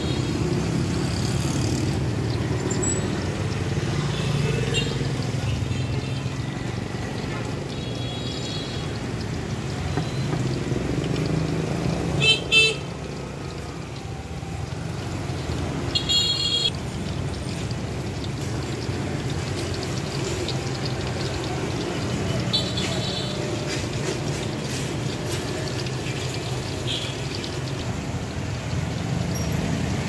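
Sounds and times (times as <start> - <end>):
street noise: 0.0 - 30.0
vehicle horns honking: 12.2 - 12.9, 16.0 - 16.7.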